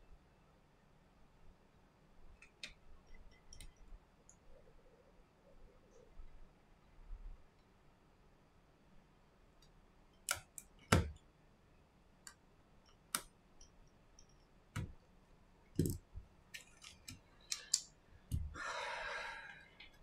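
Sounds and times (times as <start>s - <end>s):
small parts clicking and tapping: 2.4s - 4.4s, 12.2s - 15.0s, 15.8s - 18.6s.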